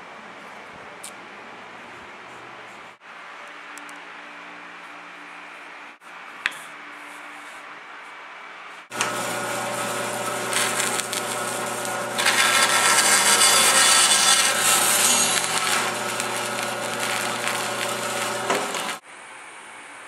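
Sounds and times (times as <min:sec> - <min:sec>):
band saw cutting wood: 0:08.9 - 0:19.0
motor hum: 0:08.9 - 0:19.0.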